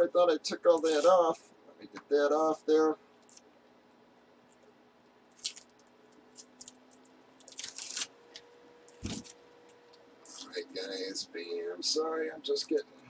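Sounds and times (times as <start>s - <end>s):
tape peeling off plastic: 0.8s - 1.1s, 5.3s - 8.1s, 8.9s - 9.4s.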